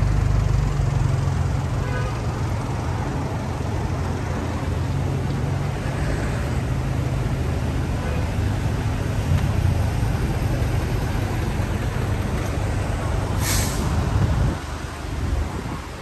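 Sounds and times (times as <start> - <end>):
city street traffic: 0.0 - 16.0
heavy vehicle engine rumbling: 0.0 - 16.0
air brakes hissing: 13.3 - 14.1.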